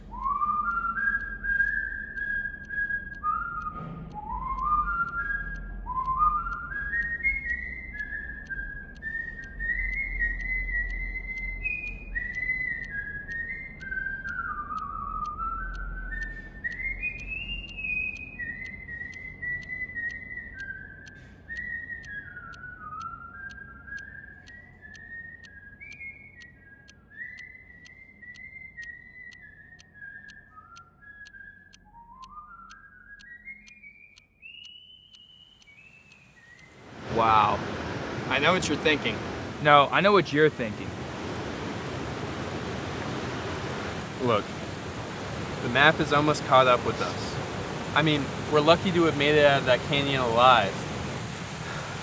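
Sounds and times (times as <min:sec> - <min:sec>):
person whistling a tune: 0:00.0 - 0:36.1.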